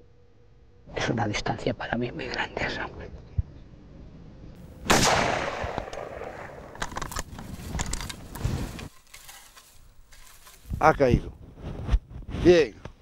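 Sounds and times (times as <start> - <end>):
rifle shot echoing: 4.8 - 6.8.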